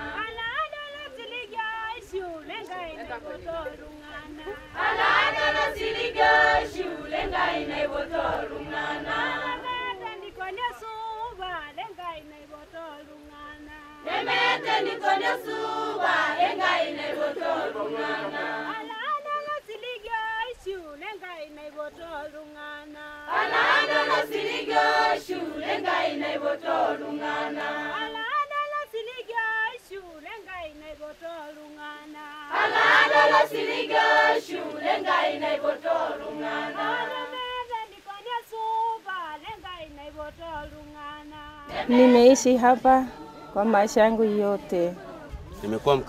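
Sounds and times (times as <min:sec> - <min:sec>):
choir singing: 0:00.0 - 0:01.2, 0:02.1 - 0:11.1, 0:12.7 - 0:19.1, 0:23.3 - 0:28.3, 0:32.4 - 0:37.9, 0:41.6 - 0:46.0.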